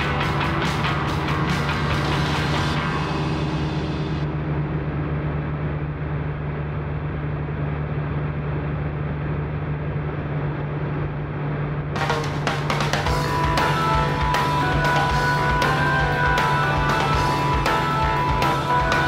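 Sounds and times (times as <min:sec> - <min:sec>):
post-punk music with drums: 0:00.0 - 0:04.3, 0:12.0 - 0:19.0.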